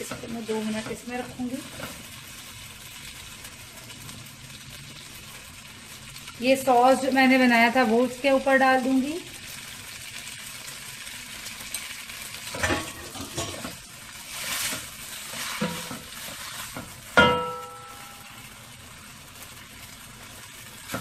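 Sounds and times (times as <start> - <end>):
food sizzling in a wok: 0.0 - 21.0
spatula clanking on wok: 12.5 - 13.8, 15.6 - 18.4
spatula scraping and knocking pan: 12.5 - 18.4.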